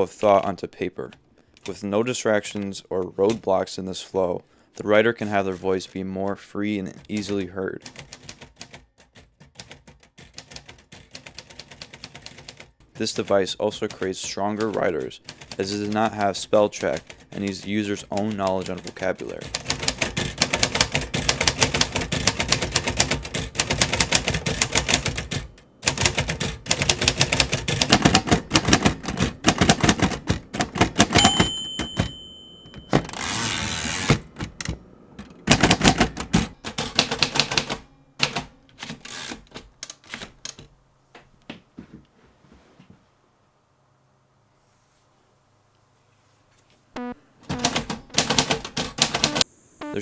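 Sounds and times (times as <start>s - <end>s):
typewriter keys clattering: 6.9s - 34.2s, 35.5s - 40.7s
typewriter carriage return: 6.9s - 40.7s
typewriter bell ding: 31.0s - 33.7s.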